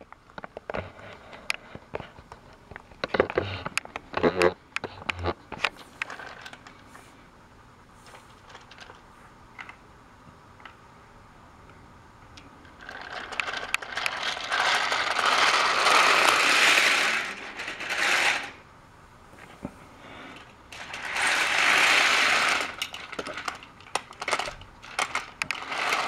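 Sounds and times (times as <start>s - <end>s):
toy train rattling whir: 5.0s - 6.7s, 8.1s - 9.1s, 12.6s - 18.6s, 20.1s - 26.0s.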